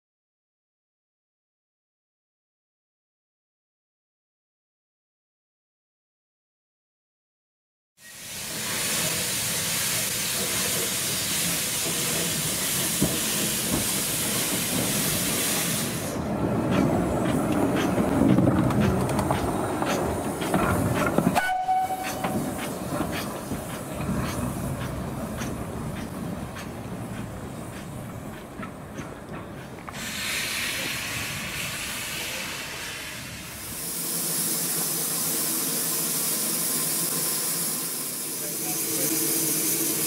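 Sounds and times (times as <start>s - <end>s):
steam hissing: 8.0s - 40.0s
steam locomotive knocking and clanking: 8.4s - 40.0s
steam whistle blast: 21.4s - 22.4s.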